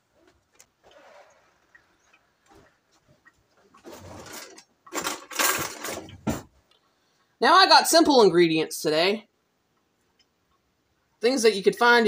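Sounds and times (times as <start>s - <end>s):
running water: 0.0s - 6.4s.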